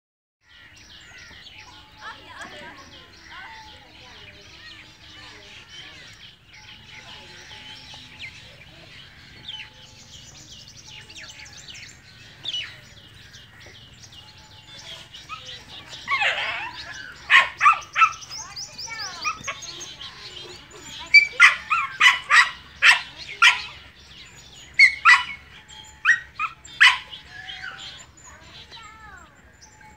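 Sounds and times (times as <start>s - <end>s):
birds chirping: 0.4s - 29.9s
dog barking: 15.3s - 18.3s, 21.1s - 23.8s, 24.8s - 25.4s, 26.0s - 27.2s.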